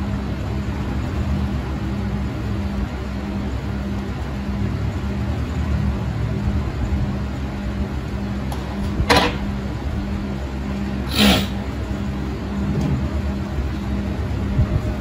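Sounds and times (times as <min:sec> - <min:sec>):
low mechanical hum: 0:00.0 - 0:15.0
hissing burst: 0:11.1 - 0:11.6.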